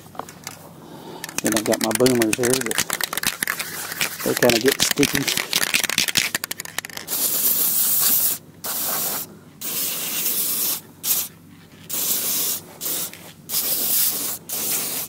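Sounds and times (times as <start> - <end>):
aerosol spray hissing: 7.1 - 11.3, 11.9 - 15.0.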